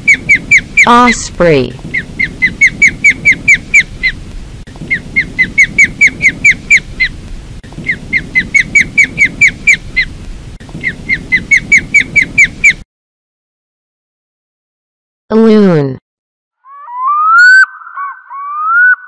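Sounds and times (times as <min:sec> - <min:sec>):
osprey calling: 0:00.0 - 0:12.8, 0:16.6 - 0:19.0.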